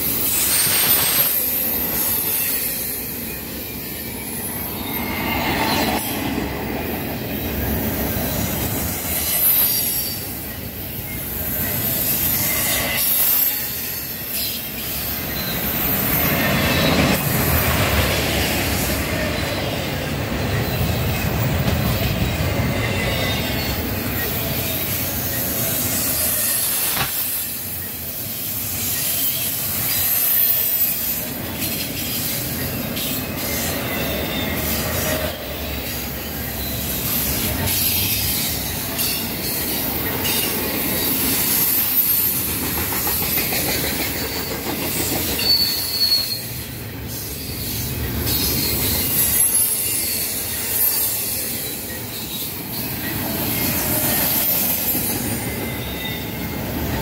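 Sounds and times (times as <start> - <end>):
steel wheels rumbling on rail: 0.0 - 57.0
high-pitched wheel squeal: 0.1 - 6.4, 7.2 - 17.6, 43.3 - 56.6.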